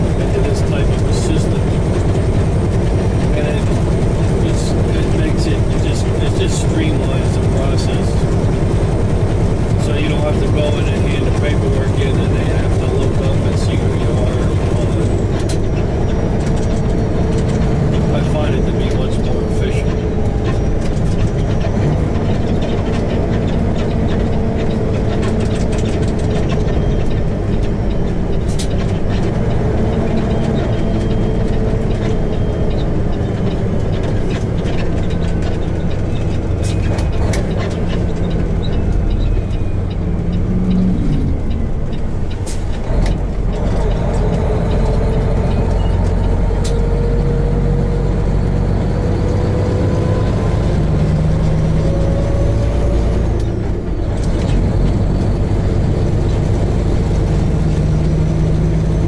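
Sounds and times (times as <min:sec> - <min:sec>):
road and cab noise: 0:00.0 - 0:59.0
truck diesel engine running: 0:00.0 - 0:59.0.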